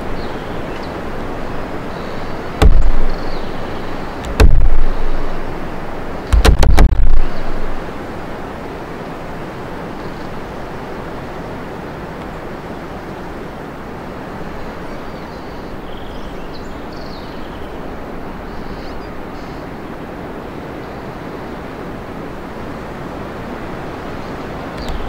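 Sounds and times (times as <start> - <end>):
wind rushing through trees: 0.0 - 25.0
faint bird chirps: 1.8 - 5.5, 14.4 - 19.8, 24.1 - 25.0.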